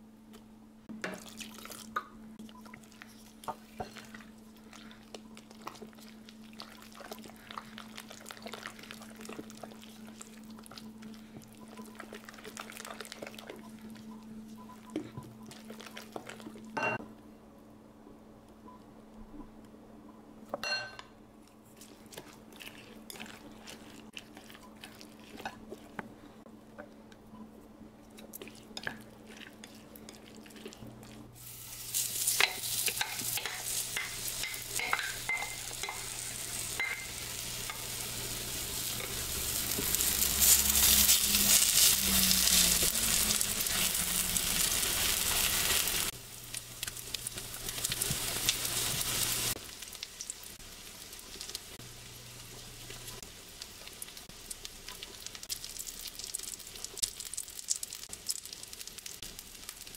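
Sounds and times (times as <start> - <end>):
batter sizzling in frying pan: 31.4 - 59.9.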